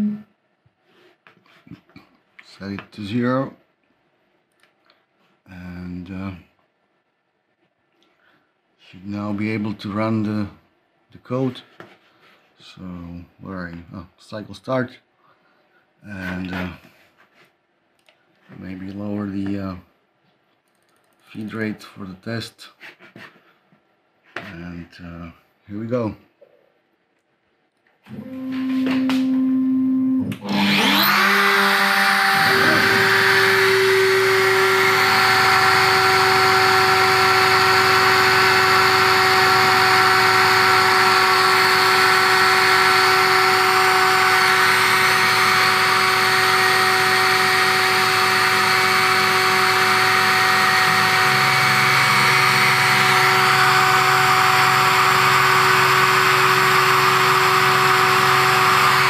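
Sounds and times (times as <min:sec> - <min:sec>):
router spindle whining: 0:28.1 - 0:59.0.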